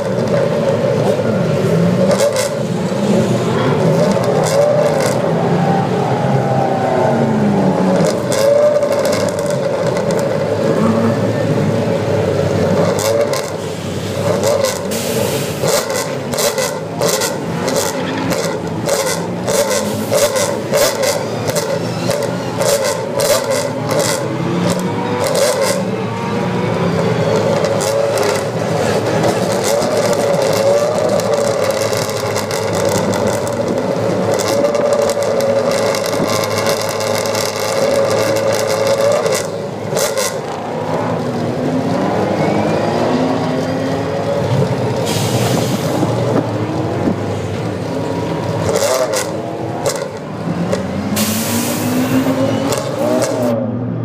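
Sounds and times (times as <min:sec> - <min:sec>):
race car engines idling: 0:00.0 - 0:42.8.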